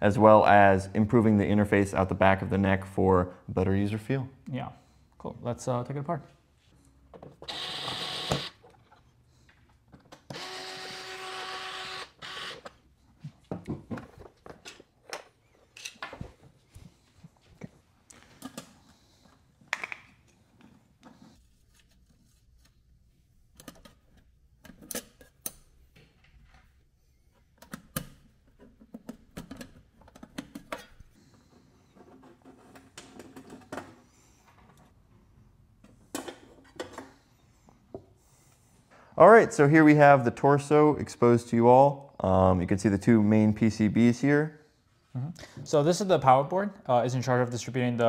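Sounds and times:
electric driver whirring: 7.4 - 8.6, 10.3 - 12.7.

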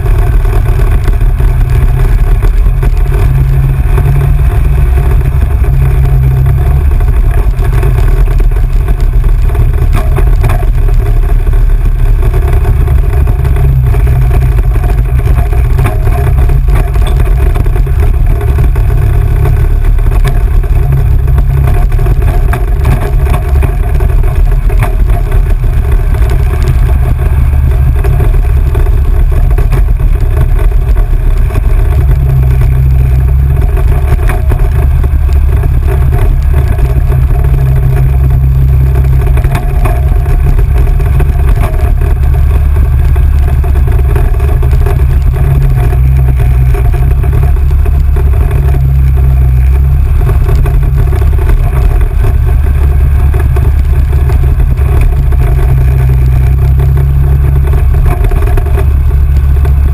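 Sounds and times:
heavy low rumble: 0.0 - 59.9
off-road vehicle engine: 0.0 - 59.9.

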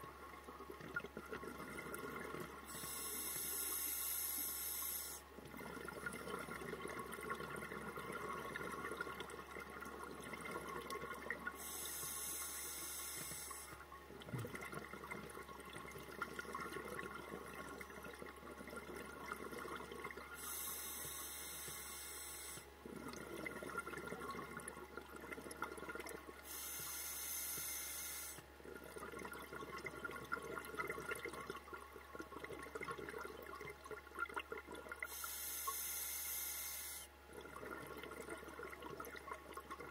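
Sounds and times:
regulator inhalation hiss: 2.7 - 5.2, 11.6 - 13.8
exhaled bubbles rushing: 22.9 - 26.3, 37.3 - 39.9.

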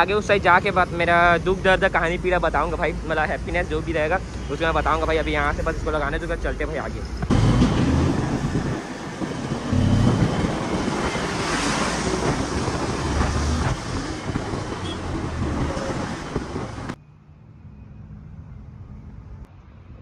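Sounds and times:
wind rushing over microphone: 0.0 - 17.0
road traffic rumbling: 0.0 - 20.0
low hum: 6.5 - 20.0
motorcycle engine: 7.2 - 17.0.

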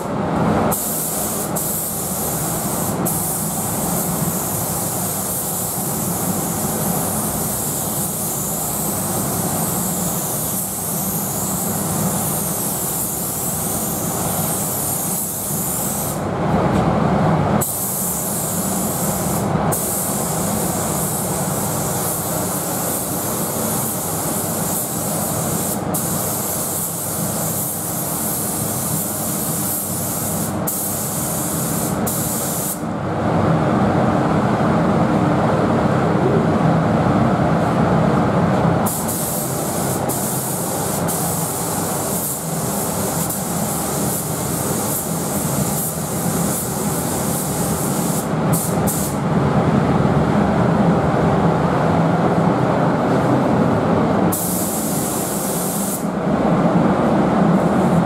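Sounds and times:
paint spray gun hissing: 0.7 - 16.2, 17.6 - 32.8, 38.9 - 49.2, 54.3 - 56.1.

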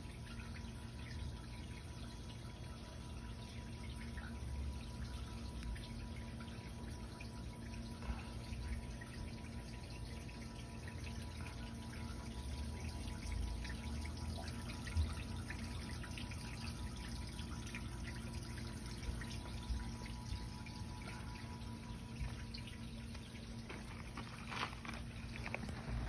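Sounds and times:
small water splashes: 10.7 - 26.0
stream babbling over stones: 23.0 - 26.0.

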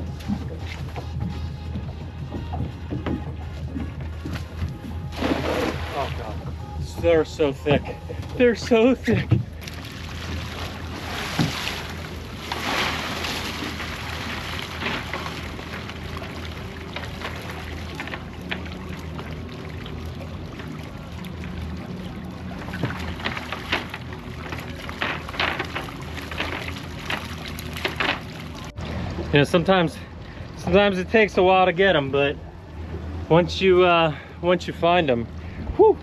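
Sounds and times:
low steady hum: 0.0 - 36.0
fish flipping about: 4.4 - 6.2, 9.6 - 18.7, 22.6 - 28.8
net splashing into water: 5.1 - 6.3, 9.6 - 18.8.

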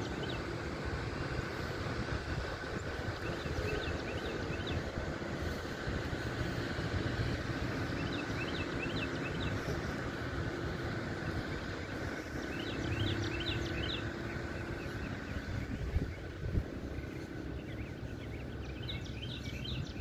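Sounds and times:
faint steady hum: 0.0 - 20.0
low outdoor rumble: 0.0 - 20.0
bird chirping: 2.8 - 5.0, 7.7 - 20.0.

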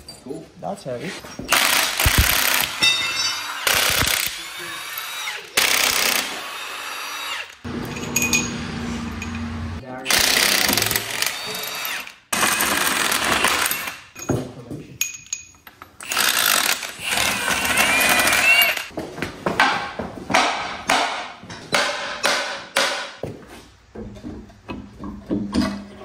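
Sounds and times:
pneumatic impact wrench bursts: 1.5 - 2.8, 3.4 - 7.6, 16.0 - 18.9.

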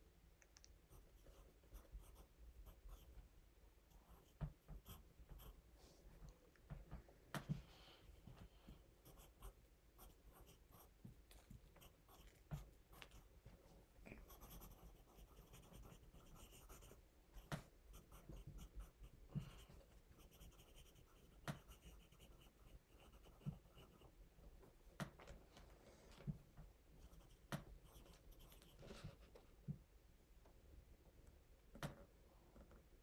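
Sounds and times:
pencil writing on paper: 14.2 - 24.0.

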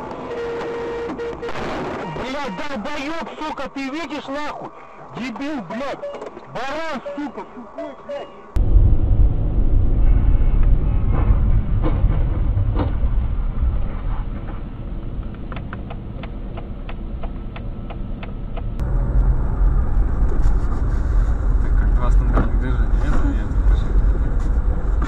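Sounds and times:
car engine and tyre rumble: 8.4 - 25.0.

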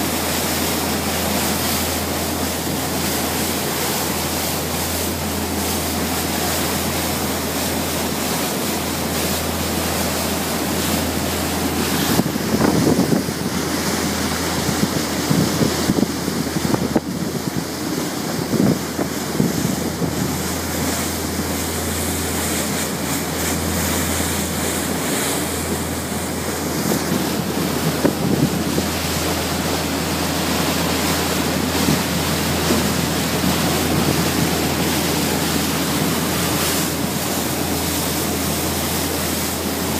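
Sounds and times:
low engine drone: 0.0 - 39.9
wake rushing along hull: 0.0 - 39.9
wind buffeting microphone: 11.1 - 23.7, 24.4 - 38.2.

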